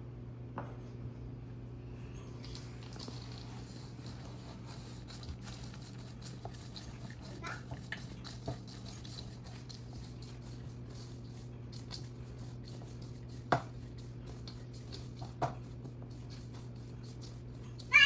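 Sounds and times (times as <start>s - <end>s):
spatula scraping in bowl: 2.8s - 18.0s
spatula knocking against bowl: 13.4s - 13.8s.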